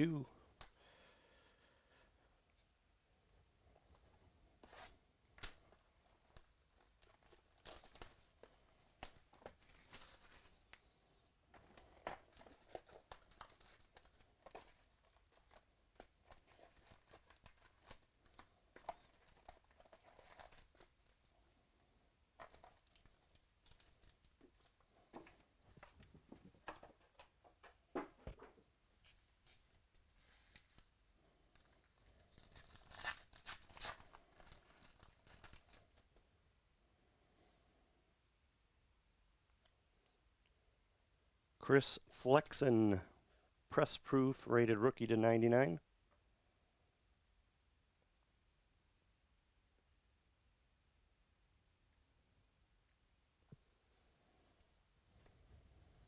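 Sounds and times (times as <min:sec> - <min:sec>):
crinkling plastic wrap and foil: 0:06.4 - 0:10.9, 0:11.6 - 0:21.4, 0:22.4 - 0:25.0, 0:31.5 - 0:36.1.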